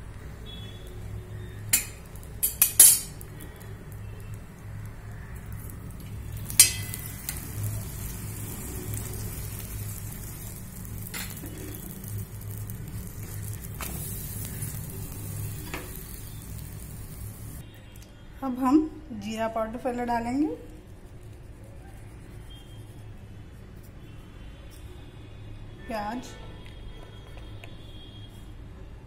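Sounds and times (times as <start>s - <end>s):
flatbread sizzling in oil: 0.0s - 17.6s
metal spatula clinking on pan: 1.7s - 3.2s, 6.5s - 7.4s.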